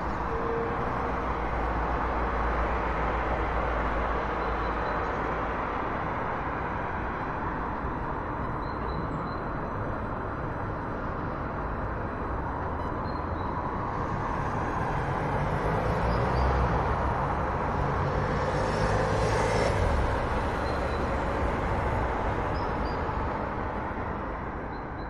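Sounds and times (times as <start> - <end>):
traffic rumble: 0.0 - 25.0
vehicle passing close: 15.0 - 22.4.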